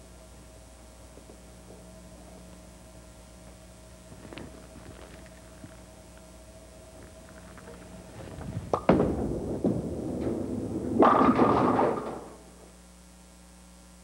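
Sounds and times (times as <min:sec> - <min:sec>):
bowling ball rolling: 0:07.2 - 0:12.7
bowling pins clattering: 0:07.7 - 0:12.6
bowling ball thud on wooden lane: 0:08.5 - 0:12.4.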